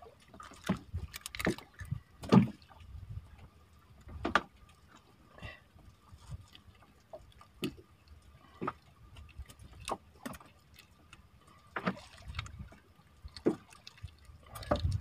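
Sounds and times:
water rumbling against hull: 0:00.0 - 0:15.0
fish knocking and slapping: 0:00.3 - 0:02.8, 0:11.7 - 0:12.7, 0:13.3 - 0:15.0.

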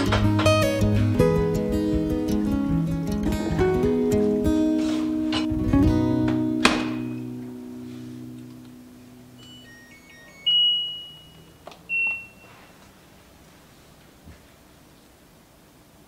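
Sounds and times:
control panel beeps: 0:09.4 - 0:12.8.

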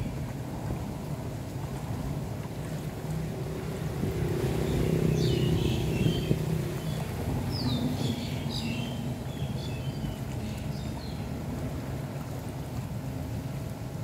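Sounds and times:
small birds chirping: 0:05.0 - 0:11.2.

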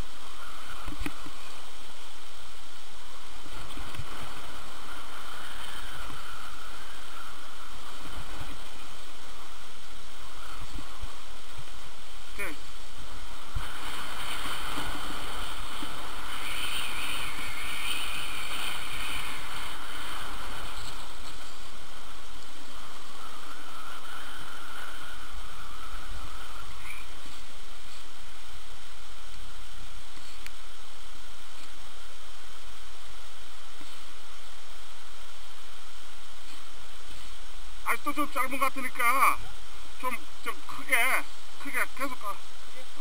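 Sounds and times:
skis scraping on snow: 0:03.0 - 0:32.5.

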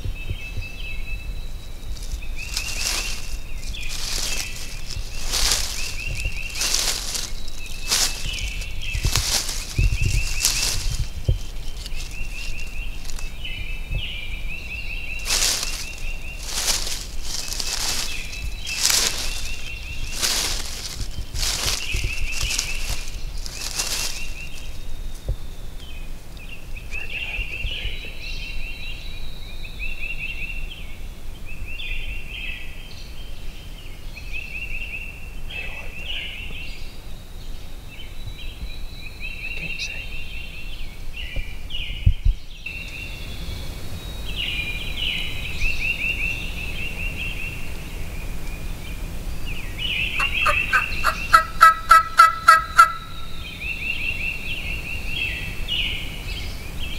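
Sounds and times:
turkey yelps: 0:50.2 - 0:53.1
turkey gobbling: 0:50.2 - 0:53.2.

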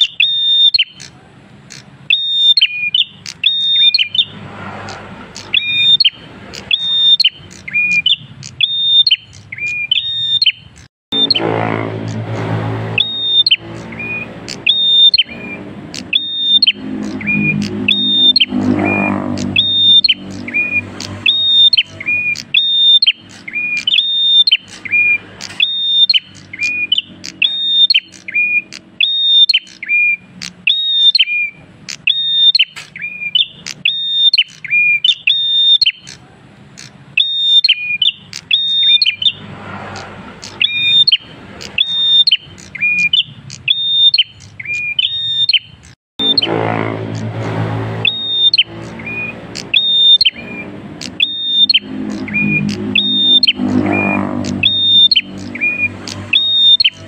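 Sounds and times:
bird singing whistled calls: 0:00.0 - 0:12.2, 0:12.8 - 0:46.5, 0:48.0 - 0:57.0.

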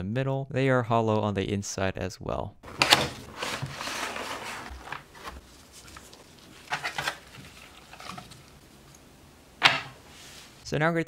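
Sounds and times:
plastic packaging rustling: 0:02.6 - 0:10.6
cardboard box opening: 0:02.7 - 0:08.6
sharp plastic crinkles: 0:02.7 - 0:09.0.

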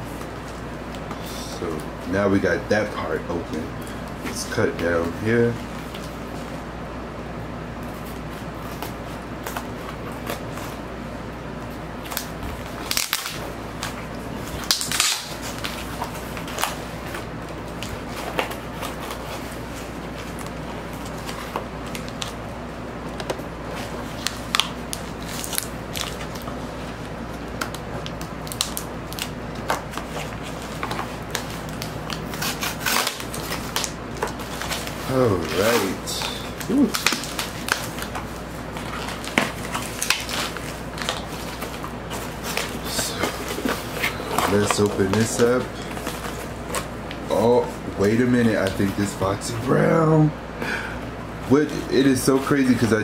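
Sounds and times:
scissors cutting cardboard: 0:32.2 - 0:36.0.

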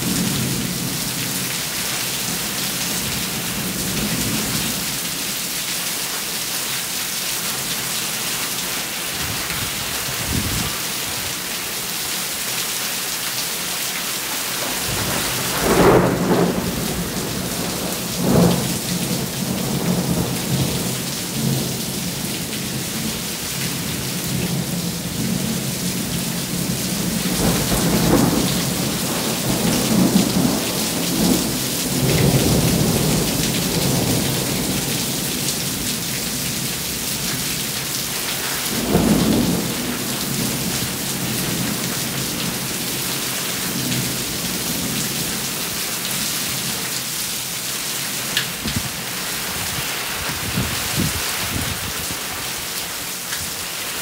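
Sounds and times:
steady rain: 0:00.0 - 0:54.0
thunder rumbling: 0:14.7 - 0:22.0, 0:26.5 - 0:35.8.

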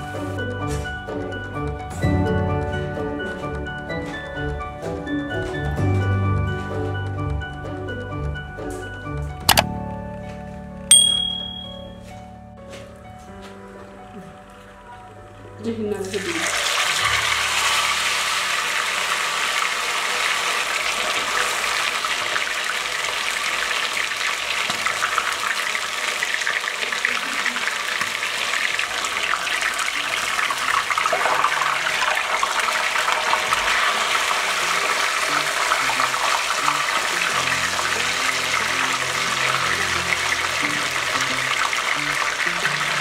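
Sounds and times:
chicken deep-frying in oil: 0:13.7 - 0:43.0.

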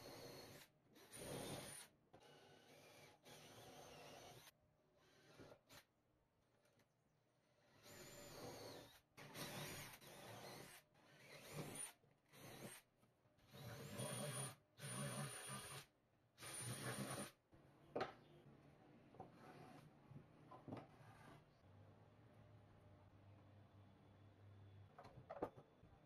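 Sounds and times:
cordless drill boring plywood: 0:00.0 - 0:05.8, 0:07.6 - 0:12.8, 0:13.5 - 0:17.4.

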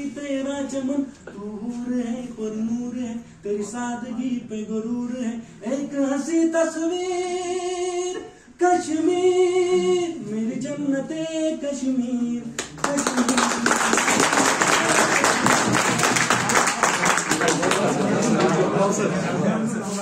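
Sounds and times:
man singing unaccompanied: 0:00.0 - 0:14.0
applause: 0:12.6 - 0:18.5.

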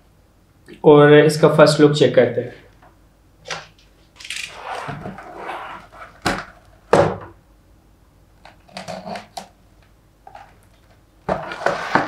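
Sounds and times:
rustling scrape of packaging: 0:11.3 - 0:12.0.

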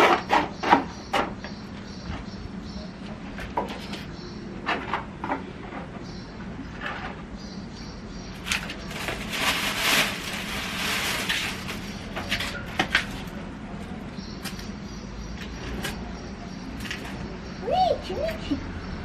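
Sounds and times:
plastic bag rustling: 0:08.4 - 0:13.3.

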